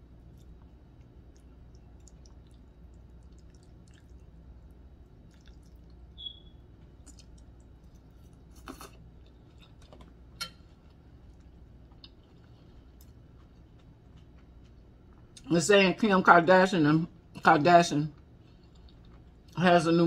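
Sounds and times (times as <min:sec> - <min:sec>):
chewing: 0:00.2 - 0:06.0, 0:06.8 - 0:15.5, 0:18.2 - 0:19.6.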